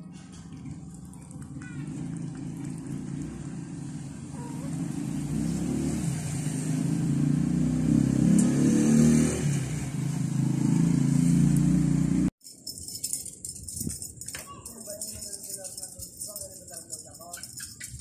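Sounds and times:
vehicle engine running: 0:00.0 - 0:07.7.

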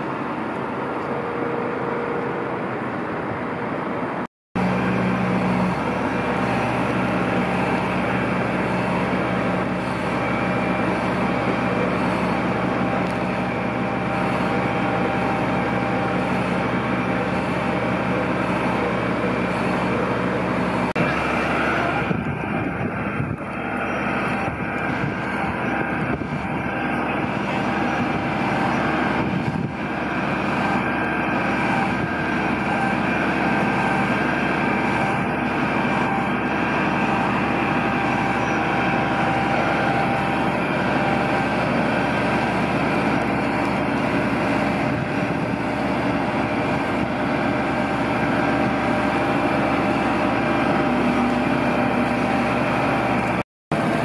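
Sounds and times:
diesel engine and pump drone: 0:00.0 - 0:54.0.

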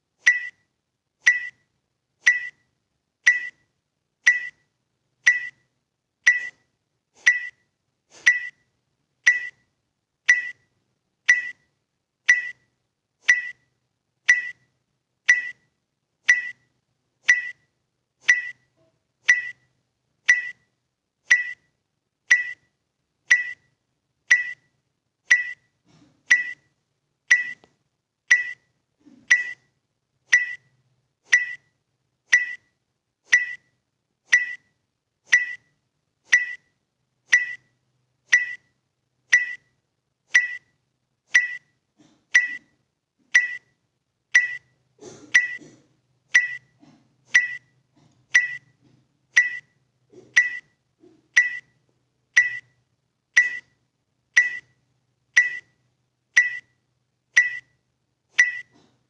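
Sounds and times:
metronome-like ticks: 0:00.2 - 0:00.6, 0:01.2 - 0:01.6, 0:02.2 - 0:02.6, 0:03.2 - 0:03.6, 0:04.2 - 0:04.6, 0:05.2 - 0:05.6, 0:06.3 - 0:06.6, 0:07.3 - 0:07.6, 0:09.3 - 0:09.6, 0:10.3 - 0:10.7, 0:11.3 - 0:11.7, 0:12.3 - 0:13.7, 0:14.3 - 0:14.7, 0:15.3 - 0:19.7, 0:20.3 - 0:20.7, 0:21.3 - 0:21.7, 0:22.3 - 0:22.7, 0:23.3 - 0:23.7, 0:24.3 - 0:24.7, 0:25.3 - 0:25.7, 0:26.3 - 0:26.7, 0:27.3 - 0:27.7, 0:28.3 - 0:28.7, 0:29.3 - 0:29.7, 0:30.3 - 0:31.7, 0:32.3 - 0:32.7, 0:33.3 - 0:36.7, 0:37.3 - 0:41.7, 0:42.4 - 0:42.7, 0:43.3 - 0:44.8, 0:45.4 - 0:45.6, 0:46.3 - 0:48.8, 0:49.4 - 0:49.8, 0:50.4 - 0:50.8, 0:51.4 - 0:52.8, 0:53.4 - 0:53.8, 0:54.4 - 0:54.8, 0:55.4 - 0:55.8, 0:56.4 - 0:56.8, 0:57.4 - 0:57.8, 0:58.4 - 0:58.8.

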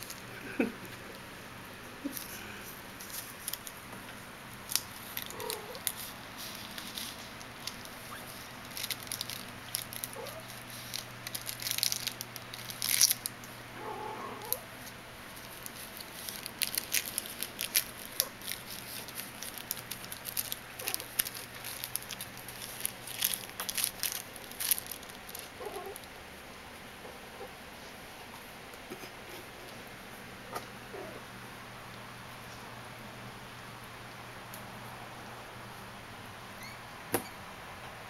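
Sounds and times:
metallic ribbon crinkling: 0:04.6 - 0:13.4, 0:15.3 - 0:26.2.

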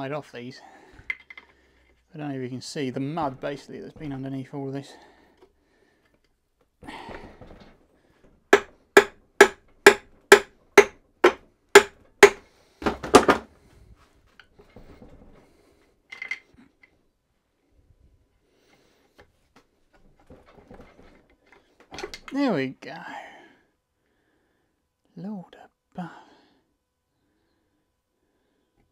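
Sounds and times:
hammer blows on metal: 0:08.6 - 0:12.4.

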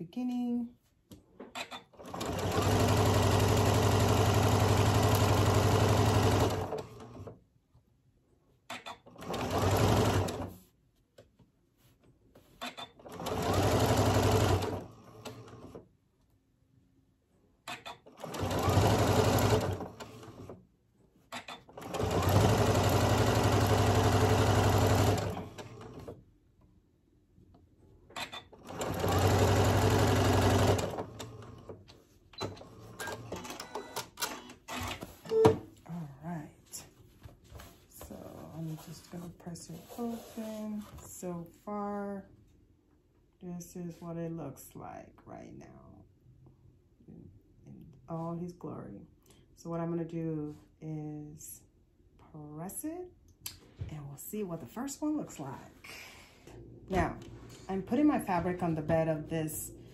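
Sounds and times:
sewing machine stitching: 0:01.6 - 0:07.4, 0:08.7 - 0:10.6, 0:12.6 - 0:15.8, 0:17.7 - 0:20.6, 0:21.3 - 0:26.2, 0:28.1 - 0:31.8.

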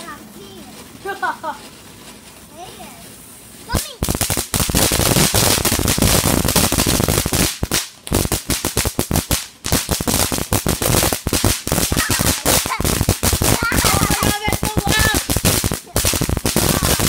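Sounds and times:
firework crackling with sharp pops: 0:00.0 - 0:17.0.

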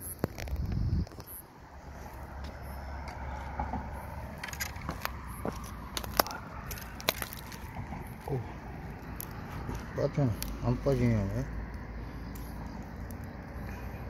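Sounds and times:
handling clicks and scrapes: 0:03.0 - 0:08.3.

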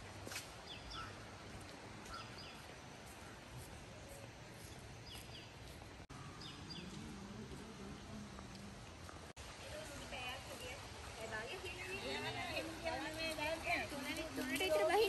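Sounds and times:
outdoor background hiss: 0:00.0 - 0:15.0
small birds chirping: 0:02.0 - 0:07.4.

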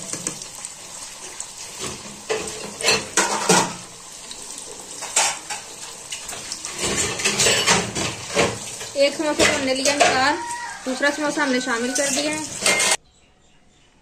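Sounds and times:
food sizzling in hot oil: 0:00.0 - 0:13.0
metal utensil scraping a pan: 0:01.8 - 0:03.9, 0:05.0 - 0:13.0.

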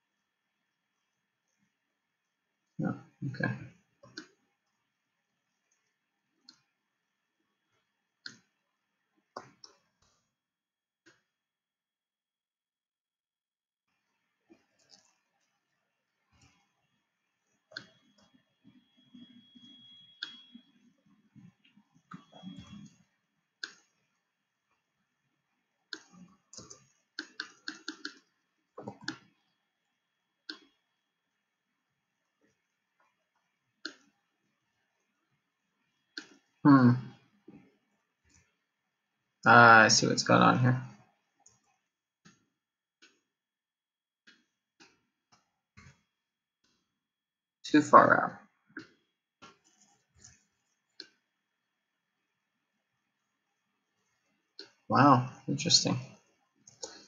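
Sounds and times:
computer mouse clicking: 0:14.6 - 0:15.5, 0:19.1 - 0:20.8, 0:23.6 - 0:24.0, 0:25.9 - 0:29.4, 0:30.5 - 0:30.7, 0:33.8 - 0:34.1, 0:48.8 - 0:51.2, 0:56.6 - 0:57.0.

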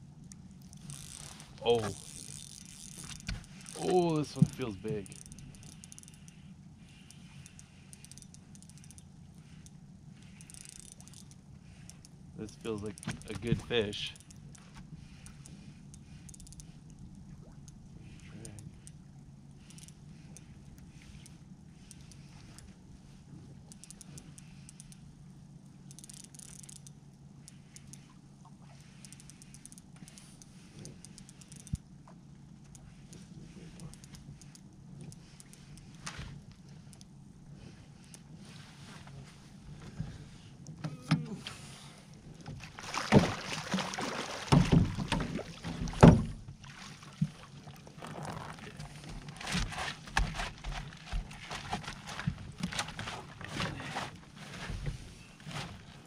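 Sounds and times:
steady low hum: 0:00.0 - 0:56.0
fishing reel ticking: 0:00.6 - 0:13.3, 0:14.0 - 0:14.6, 0:15.2 - 0:16.8, 0:19.6 - 0:20.5, 0:23.7 - 0:25.0, 0:25.8 - 0:28.0, 0:28.9 - 0:31.8, 0:33.7 - 0:36.0.

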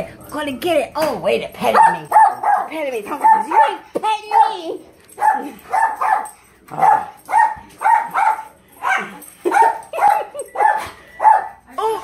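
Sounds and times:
small dog barking: 0:05.2 - 0:11.5.

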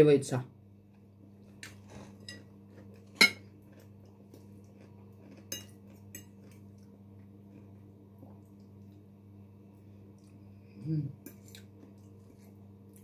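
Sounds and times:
steady low hum: 0:00.0 - 0:13.0
cutlery clinking against plate: 0:03.1 - 0:03.5, 0:05.5 - 0:06.4.

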